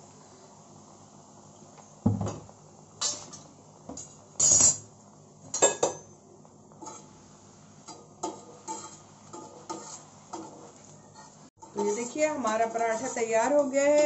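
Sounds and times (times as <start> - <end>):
metal spatula clinking on iron griddle: 3.0 - 4.8, 5.5 - 6.2, 7.9 - 10.6, 11.2 - 14.0.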